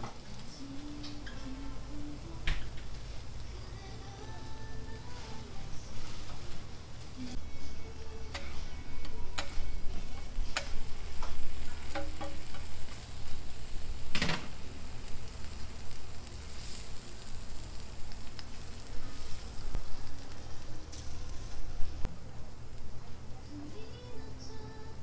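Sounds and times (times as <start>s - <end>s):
low steady hum: 0.0s - 25.0s
bacon sizzling on griddle: 2.4s - 22.1s
metal spatula scraping griddle: 5.0s - 13.9s, 14.5s - 21.9s.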